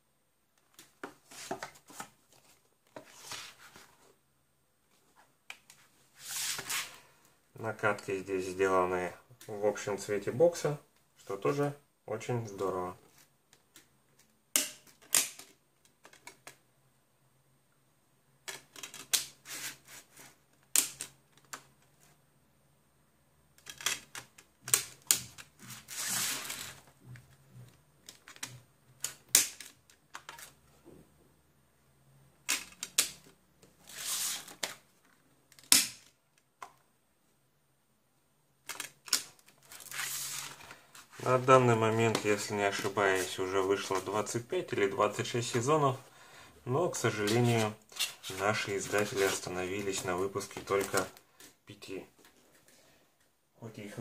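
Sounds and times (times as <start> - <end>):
plastic sliding and rustling: 0.8 - 4.2, 5.0 - 7.1, 25.2 - 27.4, 33.8 - 35.2, 38.7 - 44.4, 47.0 - 51.6.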